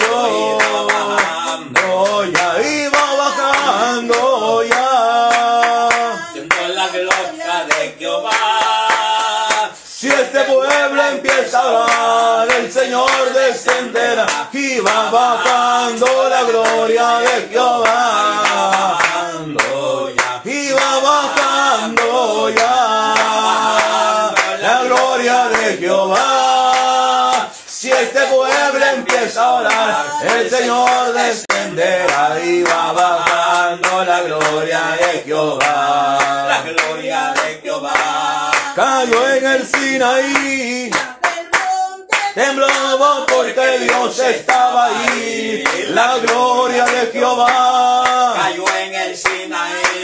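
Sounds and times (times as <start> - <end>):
man singing worship chorus: 0.0 - 41.3, 42.2 - 50.0
hand clapping in time: 0.0 - 50.0.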